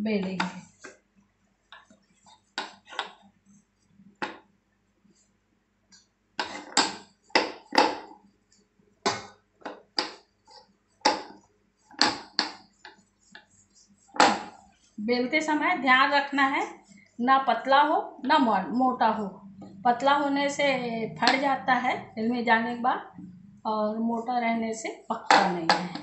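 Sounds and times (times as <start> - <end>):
rolling pin knocking on board: 2.6 - 3.2, 4.2 - 4.5, 6.4 - 8.2, 9.1 - 10.3, 11.0 - 11.4, 12.0 - 13.5, 14.2 - 14.6, 25.2 - 26.0.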